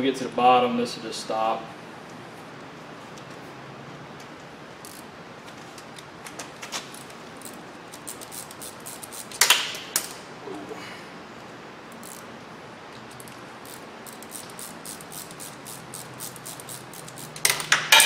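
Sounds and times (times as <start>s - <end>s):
thread chaser clicking: 13.1s - 17.7s.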